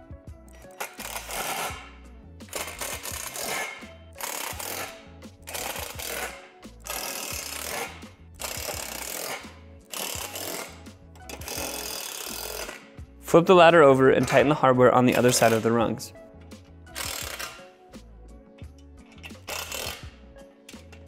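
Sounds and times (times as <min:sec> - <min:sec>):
impact driver bursts: 0:02.5 - 0:12.9, 0:17.0 - 0:17.6, 0:19.4 - 0:20.1.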